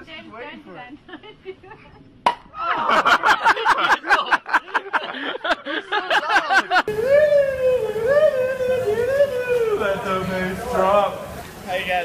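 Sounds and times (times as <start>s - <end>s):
voices laughing and shouting: 0.4s - 11.6s.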